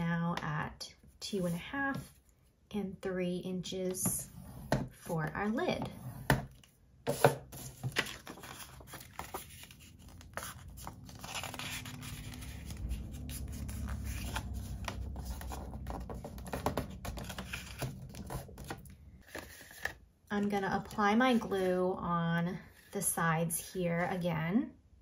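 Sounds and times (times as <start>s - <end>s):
bone folder scoring card: 5.8s - 20.0s
paper rustling: 7.1s - 20.0s.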